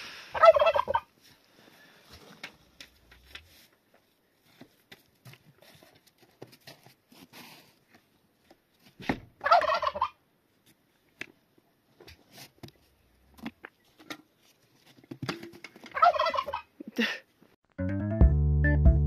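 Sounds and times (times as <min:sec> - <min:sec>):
turkey gobbling: 0:00.4 - 0:01.1, 0:09.4 - 0:10.2, 0:15.9 - 0:16.7.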